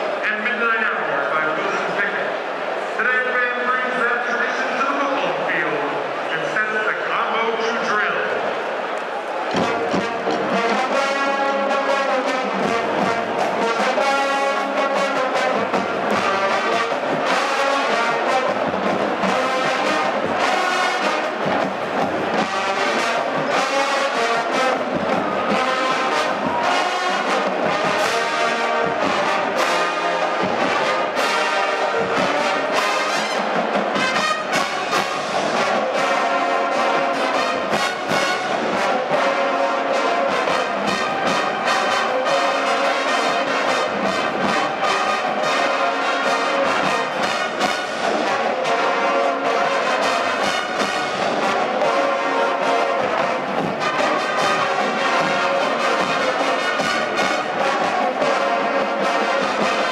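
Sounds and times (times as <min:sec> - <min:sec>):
trombones and trumpets: 0:00.0 - 0:59.9
drum hits: 0:09.5 - 0:10.6.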